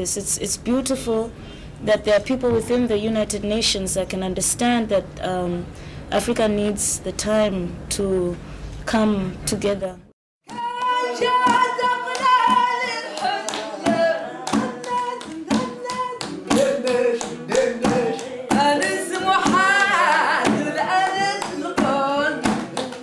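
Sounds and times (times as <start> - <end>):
hand percussion beat: 10.4 - 23.0
person singing melody: 10.5 - 23.0.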